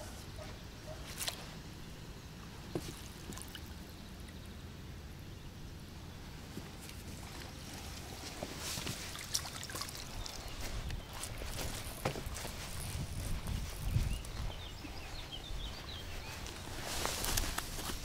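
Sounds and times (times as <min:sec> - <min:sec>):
water splashing and trickling: 0:02.7 - 0:04.4, 0:06.7 - 0:14.4
steady low rumble: 0:10.1 - 0:17.9.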